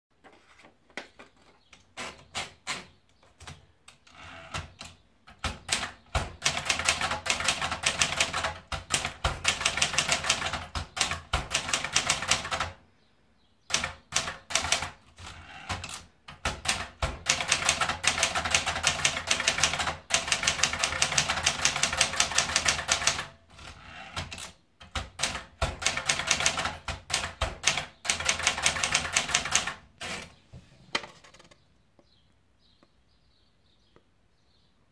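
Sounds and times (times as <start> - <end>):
rapid typewriter keystrokes: 4.4 - 12.8, 13.7 - 30.2.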